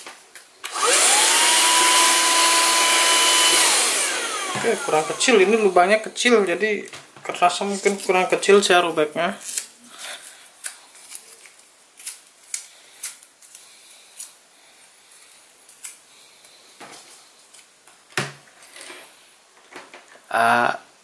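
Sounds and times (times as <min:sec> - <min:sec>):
paper tearing: 0:09.4 - 0:13.6.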